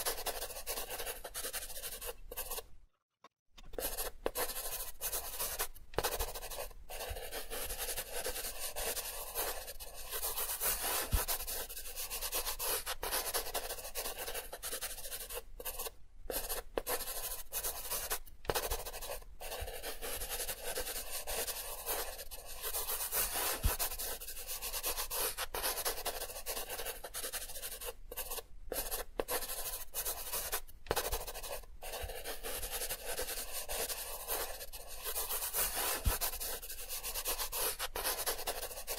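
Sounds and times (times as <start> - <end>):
pencil scratching on paper: 0.0 - 2.8, 3.6 - 38.9.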